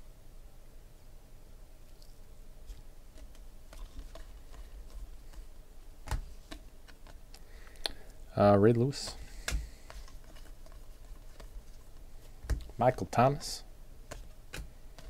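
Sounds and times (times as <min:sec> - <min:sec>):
trading cards clicking and tapping: 0:03.1 - 0:13.4, 0:14.0 - 0:15.0.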